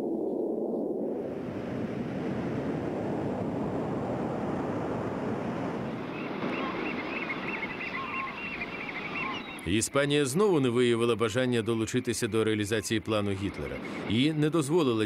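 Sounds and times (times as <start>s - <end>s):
wind: 0.0s - 15.0s
sea surf: 1.3s - 9.5s, 13.3s - 15.0s.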